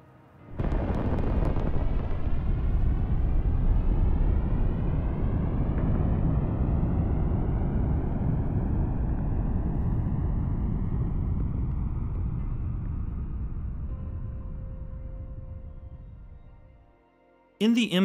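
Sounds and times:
rocket engine roar: 0:00.6 - 0:12.4.

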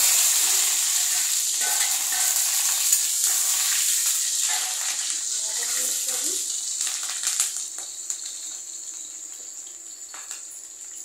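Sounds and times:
hot oil sizzling in a pan: 0:00.0 - 0:11.0
metal spoon stirring: 0:00.4 - 0:05.1.

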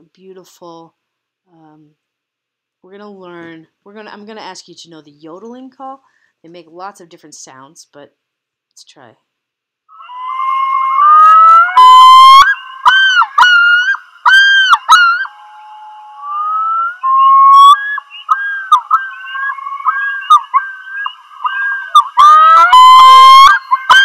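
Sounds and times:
loon yodel call: 0:09.9 - 0:24.0.

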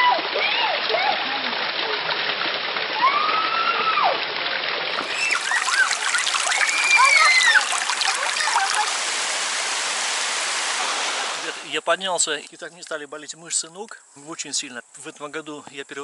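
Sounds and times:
spring water gushing: 0:00.0 - 0:13.0
rising and falling calls: 0:04.9 - 0:11.7.

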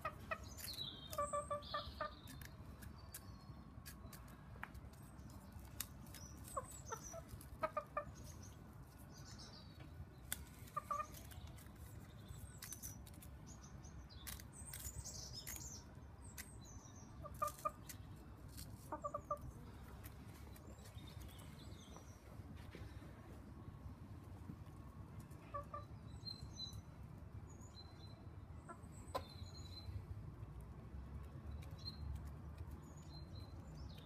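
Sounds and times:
hens clucking: 0:06.4 - 0:08.3, 0:10.6 - 0:11.3, 0:18.8 - 0:19.6, 0:25.4 - 0:25.9.

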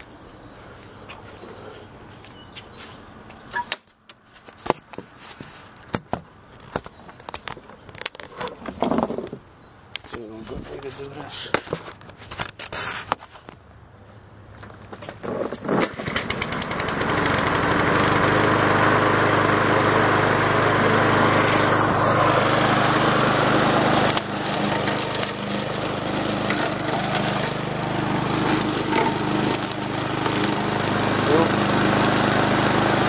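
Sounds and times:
lawn mower engine running: 0:15.1 - 0:33.0
mower cutting grass: 0:15.2 - 0:33.0.

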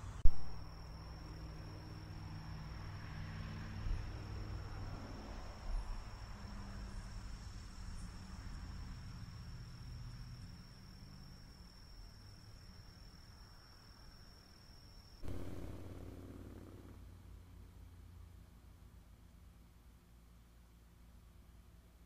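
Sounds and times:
crickets trilling: 0:00.3 - 0:16.7
low hum: 0:15.2 - 0:18.2.

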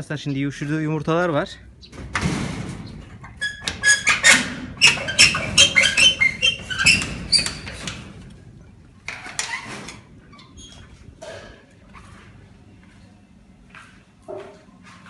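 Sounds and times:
metal door scrape: 0:02.0 - 0:08.3, 0:09.1 - 0:12.2.

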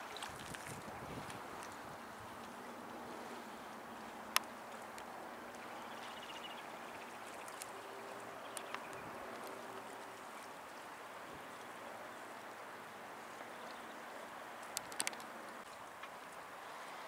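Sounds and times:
soft outdoor hiss: 0:00.0 - 0:17.0
small ticks: 0:04.3 - 0:10.2, 0:14.6 - 0:16.2.

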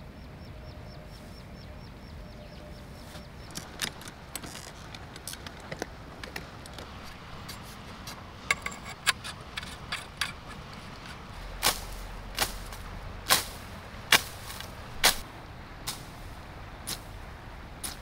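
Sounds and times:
pole sections sliding and locking: 0:03.5 - 0:12.6
telescopic pole clicking: 0:03.5 - 0:13.5.

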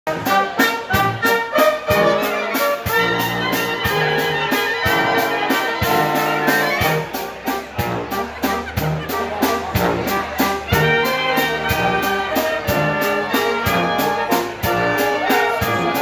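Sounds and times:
trumpets and trombones melody: 0:00.0 - 0:16.0
drum and cymbal beat: 0:00.1 - 0:16.0
low brass notes: 0:00.1 - 0:16.0.

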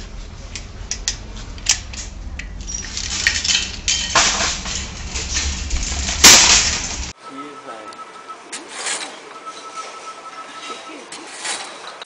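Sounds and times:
wire shopping cart clattering: 0:01.5 - 0:07.1.

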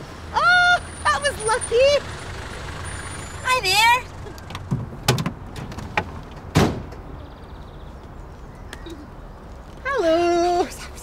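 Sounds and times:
low engine rumble: 0:00.0 - 0:07.7
car doors clicking and clunking: 0:04.4 - 0:07.0.

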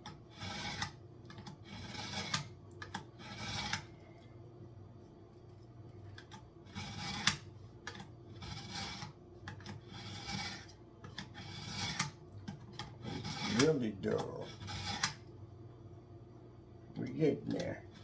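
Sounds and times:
knife scraping on sharpener: 0:00.0 - 0:03.9, 0:06.2 - 0:15.2.

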